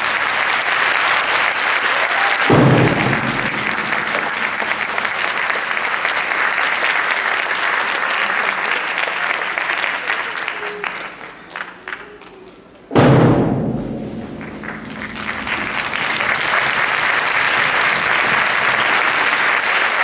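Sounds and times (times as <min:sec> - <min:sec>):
audience applauding: 0:00.0 - 0:12.5, 0:14.3 - 0:20.0
low thud: 0:02.5 - 0:05.4, 0:12.9 - 0:16.5.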